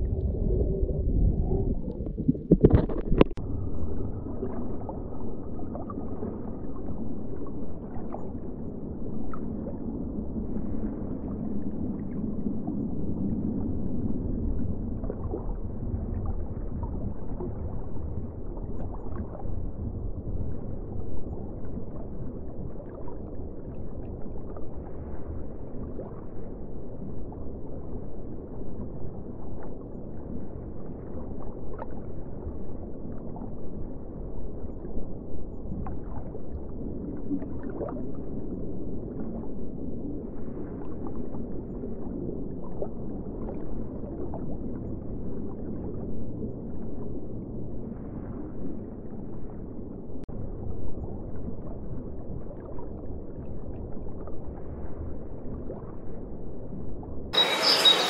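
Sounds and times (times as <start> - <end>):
faint clicks and crackles: 0.0 - 3.4
underwater rush of water: 0.0 - 49.6, 57.4 - 58.0.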